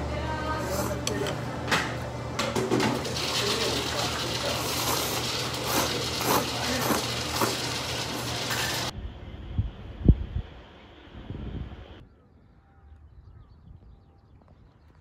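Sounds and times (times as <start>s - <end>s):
noodles being slurped: 3.0s - 8.9s
steady low hum: 3.5s - 14.4s.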